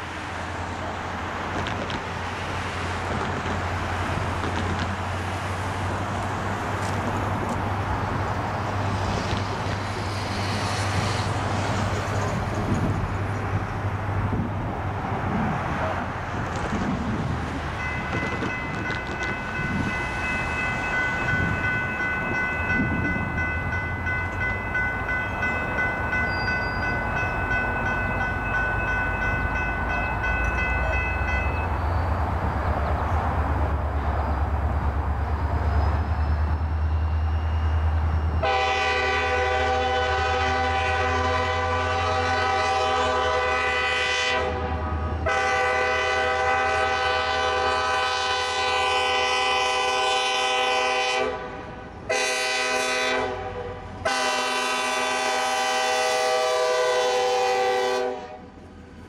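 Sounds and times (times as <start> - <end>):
faint steady horn note: 38.4 - 51.5, 52.1 - 58.5
locomotive air horn blasts: 38.4 - 58.6.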